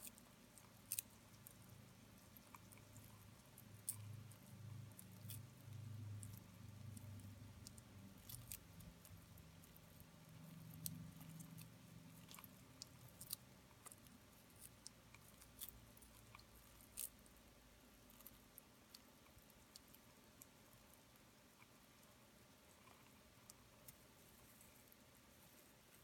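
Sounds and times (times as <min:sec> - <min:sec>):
lizard crunching insect: 0:00.0 - 0:17.4.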